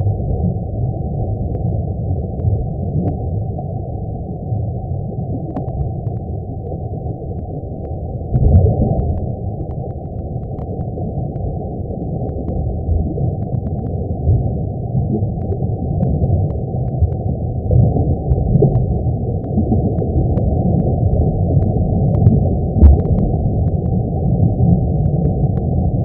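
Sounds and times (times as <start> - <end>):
low rumbling noise: 0.0 - 26.0
faint clicks: 2.3 - 3.2, 5.4 - 14.5, 15.2 - 24.0, 24.6 - 26.0.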